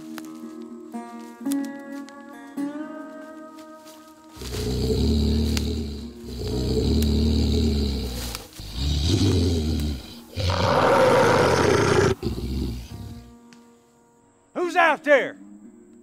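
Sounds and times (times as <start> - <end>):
low growling roars: 4.4 - 13.3.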